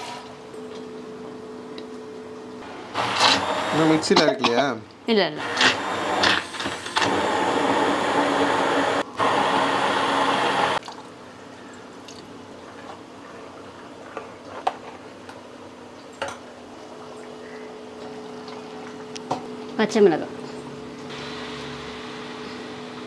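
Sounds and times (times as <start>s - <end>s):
hand blender running: 2.6s - 4.1s, 5.4s - 10.8s.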